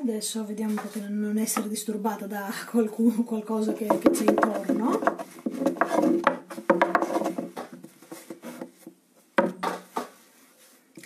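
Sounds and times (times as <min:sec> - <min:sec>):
knocks on wooden board: 0:03.7 - 0:07.8, 0:09.4 - 0:10.1
hands rubbing dough: 0:03.7 - 0:10.9.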